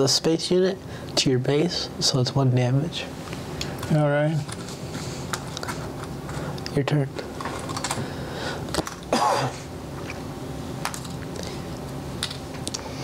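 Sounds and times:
person coughing: 9.1s - 9.7s.

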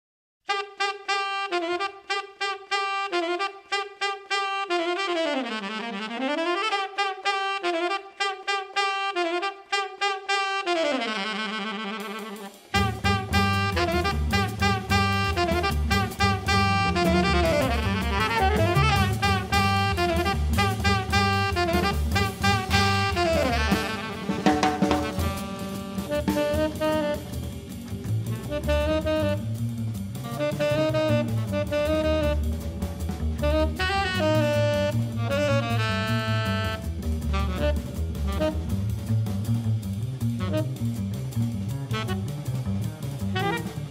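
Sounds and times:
drum kit with cymbals: 0.5s - 43.9s
tenor saxophone playing jazz: 0.5s - 43.9s
bass: 10.6s - 43.9s.

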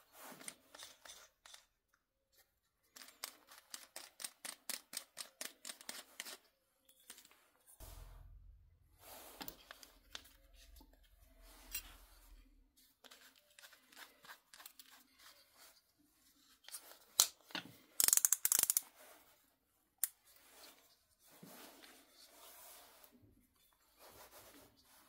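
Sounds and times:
metal clicks and scrapes of drill chuck: 0.4s - 2.0s, 3.0s - 6.4s, 18.0s - 18.9s.

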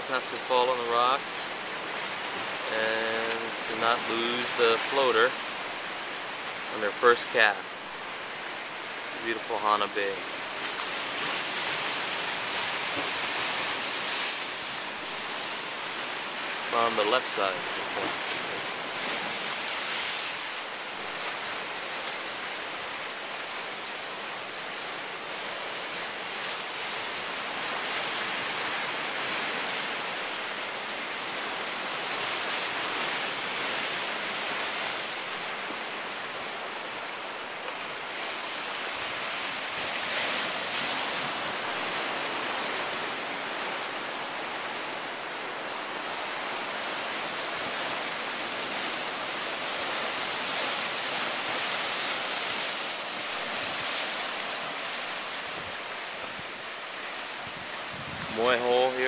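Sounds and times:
surf breaking over rocks: 0.0s - 5.4s, 6.6s - 7.7s, 9.0s - 22.9s, 37.4s - 59.0s.

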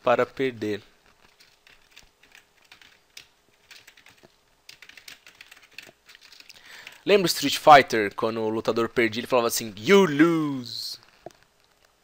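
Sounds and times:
keyboard keys clicking: 1.3s - 7.0s.

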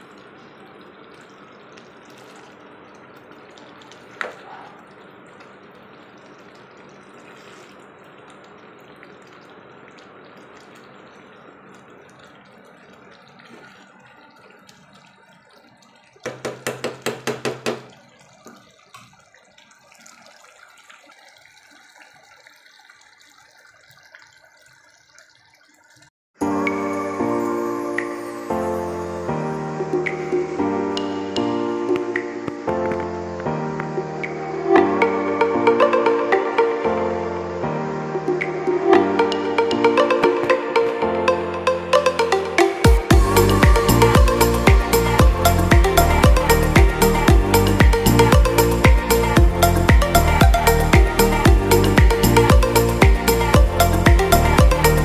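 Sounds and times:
curry bubbling in a pan: 0.0s - 26.1s.

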